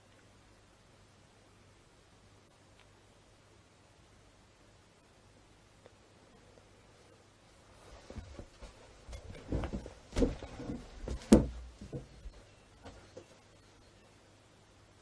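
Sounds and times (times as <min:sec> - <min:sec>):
faint steady hum: 0:00.0 - 0:15.0
short knocks and bumps: 0:08.1 - 0:13.3.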